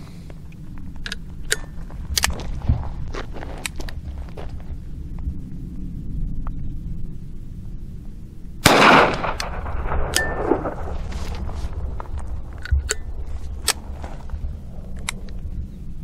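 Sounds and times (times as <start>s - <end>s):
pistol shot with echo: 8.6s - 11.0s.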